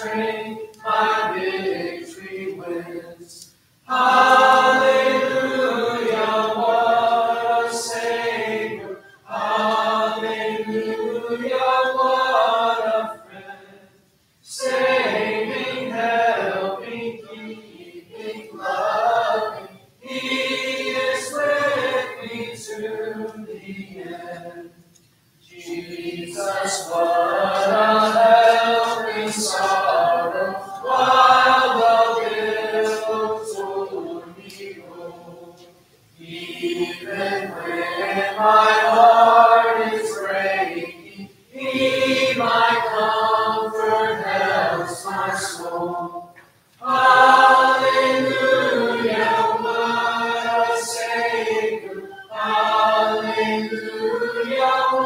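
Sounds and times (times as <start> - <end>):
congregation singing a hymn: 0.0 - 55.0.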